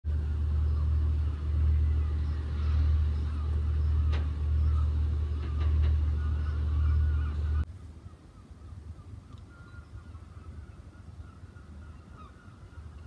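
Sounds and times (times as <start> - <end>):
faint clicks: 9.3 - 9.5.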